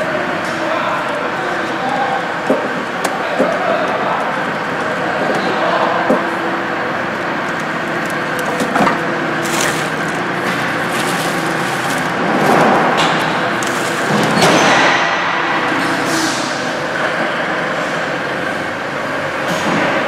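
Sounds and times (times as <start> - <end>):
clicks and knocks: 7.4 - 14.9
foil duct crinkling and rustling: 7.5 - 14.9.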